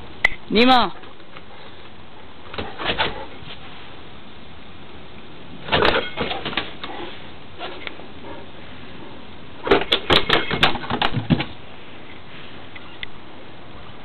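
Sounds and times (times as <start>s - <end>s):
dog claws clattering on wooden boards: 9.6s - 11.5s.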